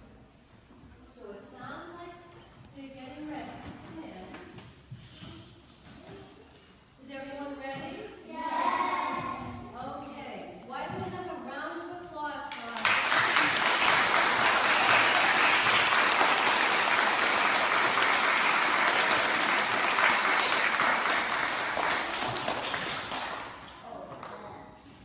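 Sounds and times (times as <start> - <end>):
children applauding: 12.8 - 23.6.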